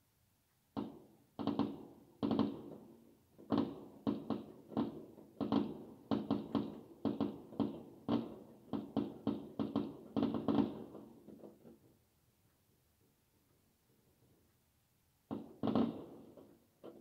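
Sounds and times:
fireworks bangs: 0.8 - 11.8, 15.3 - 17.0.

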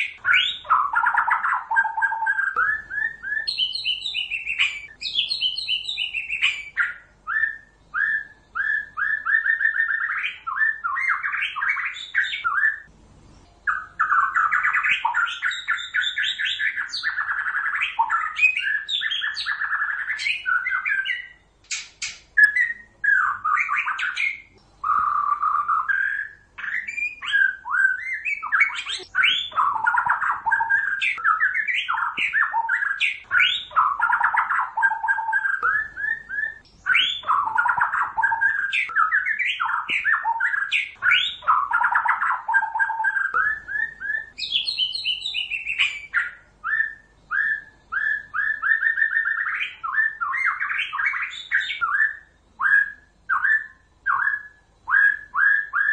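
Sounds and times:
bird singing whistled phrases: 0.0 - 12.9, 13.7 - 55.9
sharp clicking bird notes: 21.6 - 22.7, 28.4 - 46.3.

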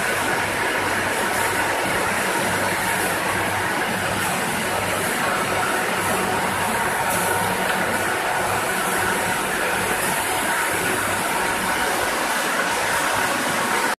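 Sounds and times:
industrial fryer line running: 0.0 - 14.0.

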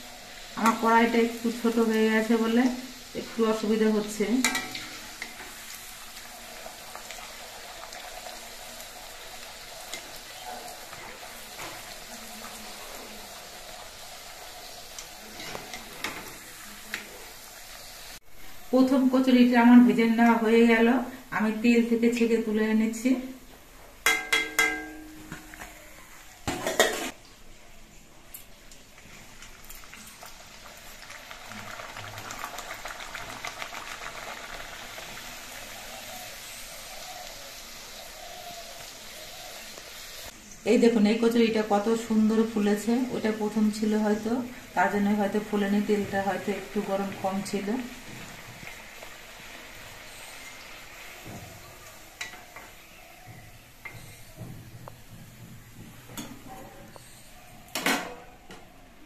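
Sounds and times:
food sizzling in hot oil: 0.0 - 27.2, 28.5 - 58.1
steel skimmer tapping pan: 24.0 - 25.6.

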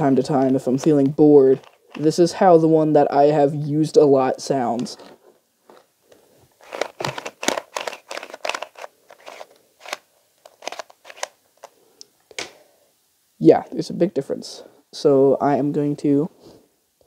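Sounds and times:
puzzle cube clicking and scraping: 0.1 - 2.3, 6.6 - 11.8.

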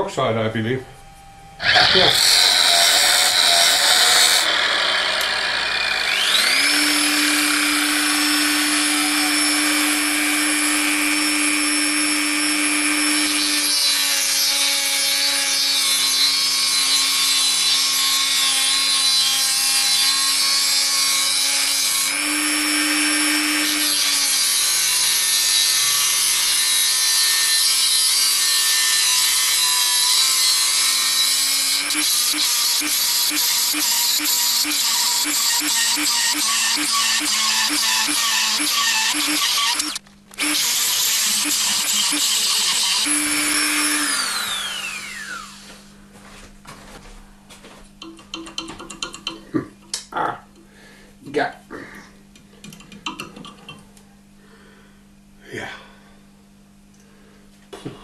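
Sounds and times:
rotary tool grinding steel: 1.6 - 45.7.

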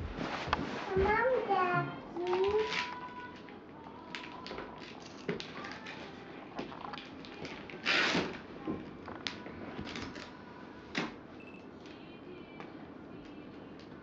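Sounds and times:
gift packaging rustling and crinkling: 2.2 - 8.4, 9.1 - 10.4.

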